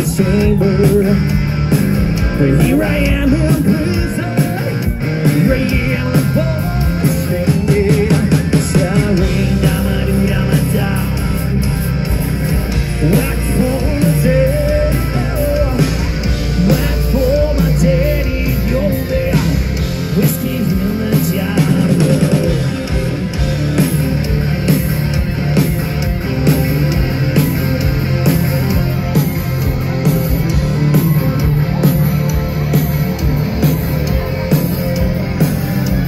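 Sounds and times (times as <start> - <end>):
person singing: 0.0 - 1.4, 2.3 - 11.6, 13.0 - 22.9
electric guitars: 0.0 - 36.0
loud rock music: 0.0 - 36.0
steady drum beat: 0.0 - 36.0.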